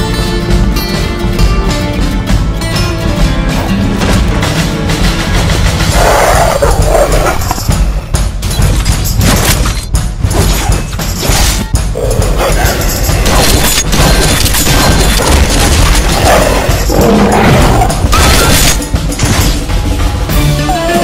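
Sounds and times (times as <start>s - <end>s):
rock soundtrack: 0.0s - 21.0s
monsters snarling: 14.6s - 18.3s.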